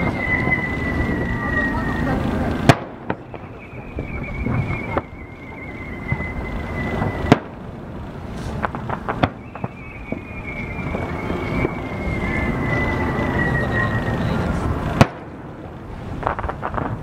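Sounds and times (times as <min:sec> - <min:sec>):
high thin falling whistle: 0:00.0 - 0:02.3, 0:03.2 - 0:07.5, 0:09.2 - 0:14.4
fireworks bangs: 0:00.0 - 0:17.0
fireworks crackles: 0:00.0 - 0:17.0.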